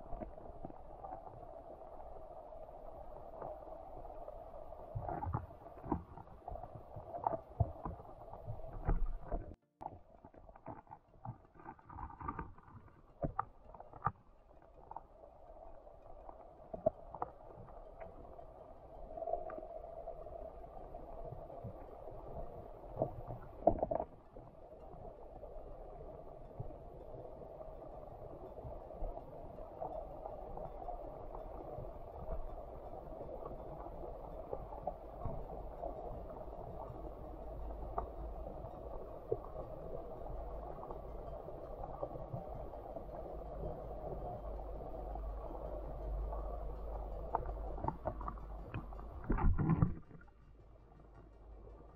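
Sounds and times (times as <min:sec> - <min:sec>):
underwater hiss and rumble: 0:00.0 - 0:51.9
sharp underwater clicks and knocks: 0:05.0 - 0:15.1, 0:23.0 - 0:24.6, 0:43.3 - 0:51.9.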